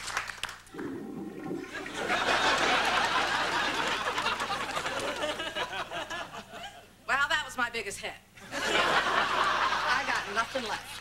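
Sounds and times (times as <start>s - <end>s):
audience laughing and applauding: 1.6s - 6.6s, 8.5s - 10.8s.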